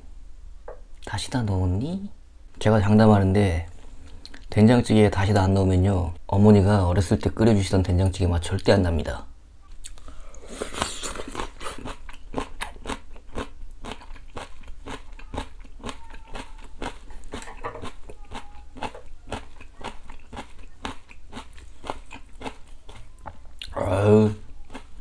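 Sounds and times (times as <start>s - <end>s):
crisp chewing crunches: 10.7s - 23.8s.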